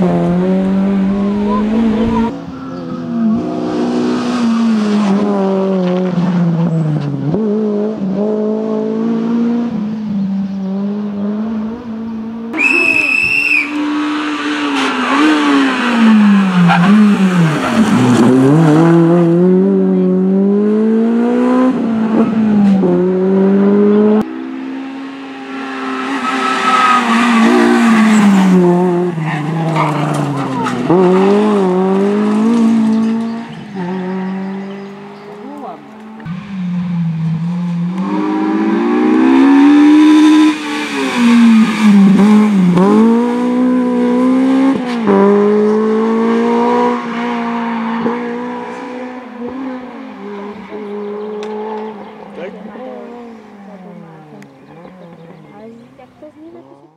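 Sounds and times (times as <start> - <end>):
tyre squeal: 12.6 - 13.8, 26.0 - 28.4
car engine revving hard: 13.8 - 55.2.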